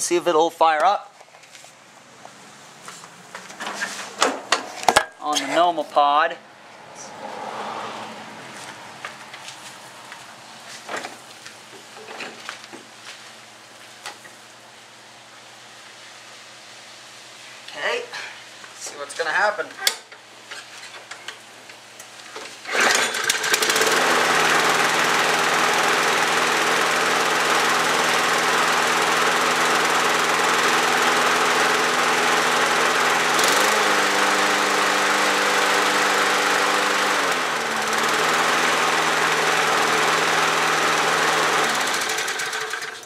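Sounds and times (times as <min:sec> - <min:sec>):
lawn mower engine running: 0:22.4 - 0:43.0.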